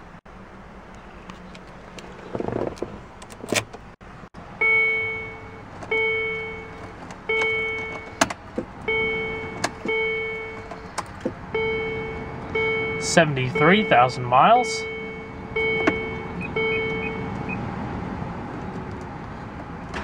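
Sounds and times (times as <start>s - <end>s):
clicks and rustling in car: 1.2s - 4.0s, 6.6s - 8.9s, 9.5s - 11.4s
dashboard warning chime: 4.6s - 8.2s, 8.9s - 10.8s, 11.5s - 17.6s.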